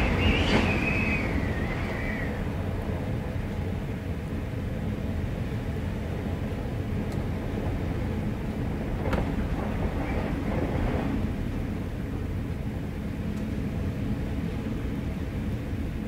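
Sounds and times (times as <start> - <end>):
faint wavering whistle: 0.0 - 2.6
wind howling through door: 0.0 - 16.0.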